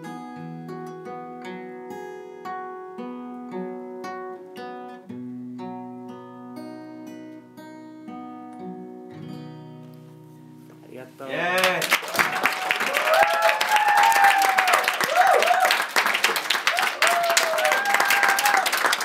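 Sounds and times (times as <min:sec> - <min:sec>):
solo acoustic guitar: 0:00.0 - 0:11.8.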